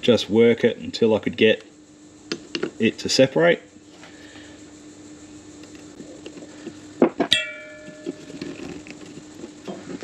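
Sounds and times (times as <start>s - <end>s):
screwdriver clanging on concrete: 7.2s - 8.5s.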